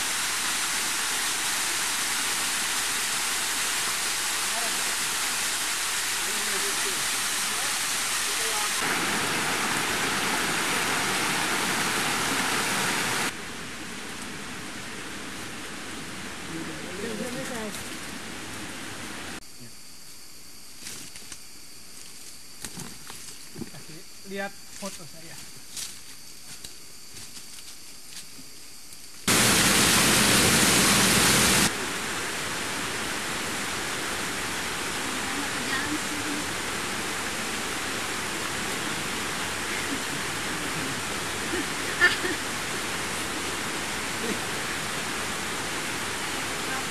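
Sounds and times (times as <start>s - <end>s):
steady water hiss: 0.0s - 19.4s, 29.0s - 46.9s
forest background: 0.0s - 46.9s
river rapids roaring: 5.6s - 13.4s, 29.3s - 46.9s
water rushing in rocky stream: 29.3s - 46.9s.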